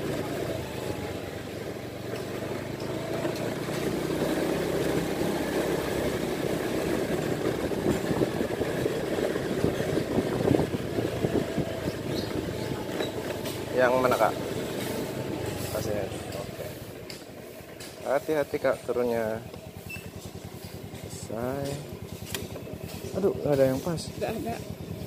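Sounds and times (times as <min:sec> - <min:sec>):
small motorcycle engine running: 0:00.0 - 0:25.0.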